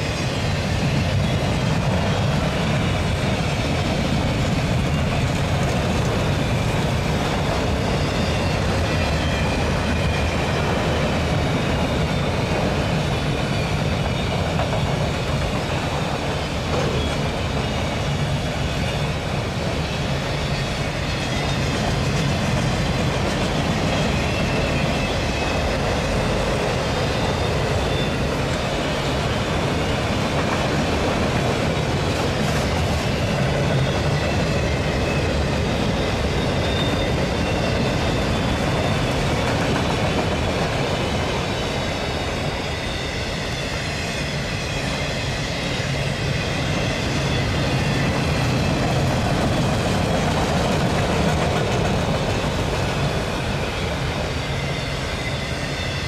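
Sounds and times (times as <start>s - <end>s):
steel wheels rolling on rail: 0.0s - 56.0s
high-pitched wheel squeal: 32.6s - 39.4s.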